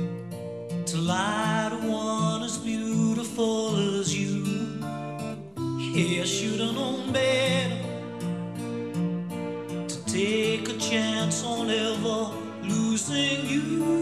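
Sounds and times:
background music melody: 0.0s - 14.0s.

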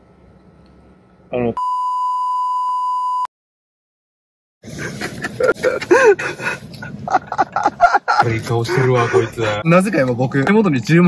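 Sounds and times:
censor beep: 1.6s - 3.3s
man's voice: 8.2s - 11.0s.

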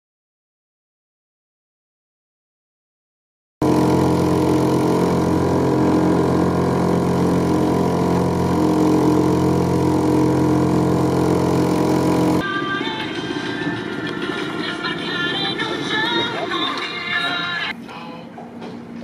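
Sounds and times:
outboard motor running: 3.6s - 12.4s.

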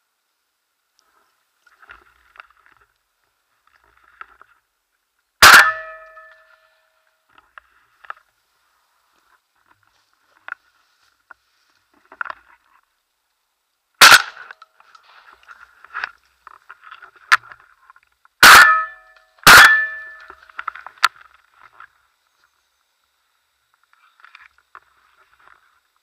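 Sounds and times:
shotgun shots: 5.4s - 6.3s, 14.0s - 14.5s, 18.4s - 20.2s.

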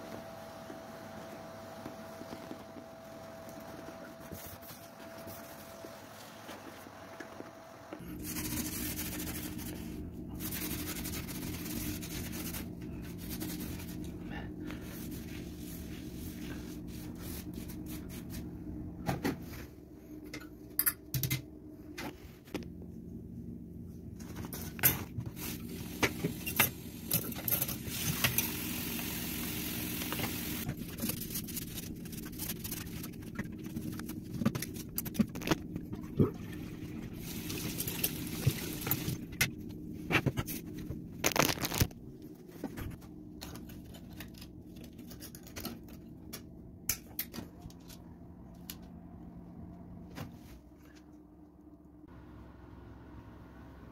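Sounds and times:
vacuum cleaner running: 0.0s - 8.1s, 27.8s - 30.7s.

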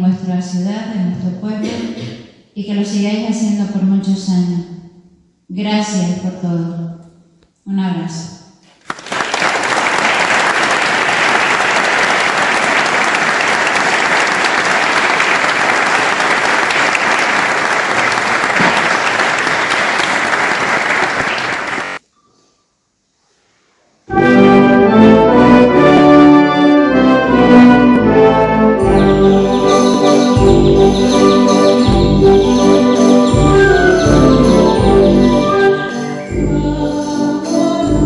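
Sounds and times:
audience applauding: 8.7s - 22.0s
wind band with brass playing: 24.1s - 37.5s.

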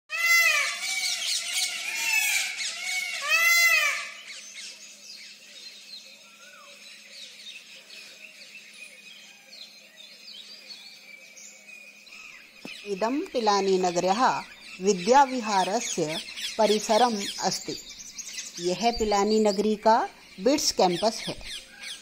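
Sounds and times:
peafowl calling loudly: 0.1s - 4.8s
small birds chirping: 0.1s - 22.0s.

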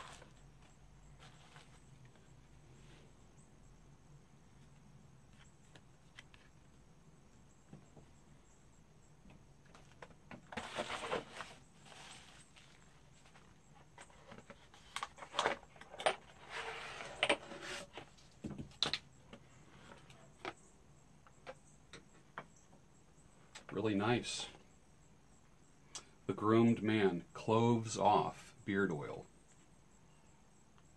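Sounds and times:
cardboard box rustling: 10.4s - 15.7s.

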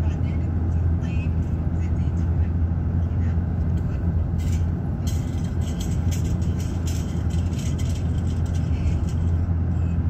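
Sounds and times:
vehicle interior rumble: 0.0s - 10.0s.

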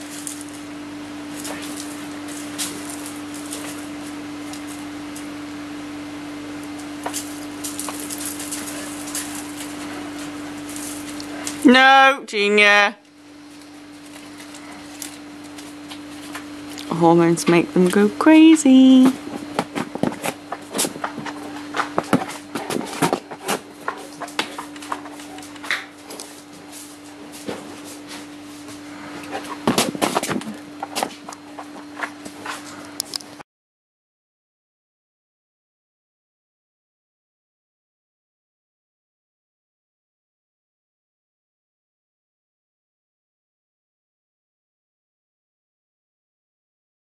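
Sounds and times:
footsteps crunching on gravel: 0.0s - 5.4s, 6.7s - 11.6s, 13.4s - 16.9s, 19.0s - 33.0s
steady hum: 0.0s - 33.4s
dog paws clicking and knocking: 19.3s - 26.6s.

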